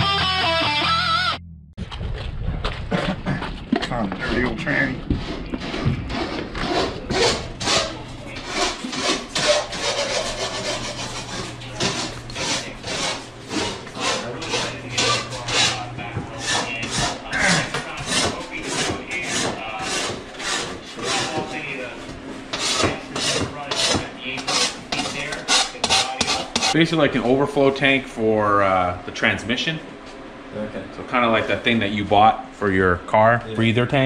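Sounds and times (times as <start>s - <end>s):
steady low hum: 1.4s - 34.0s
rasping rubbing strokes: 4.2s - 26.8s.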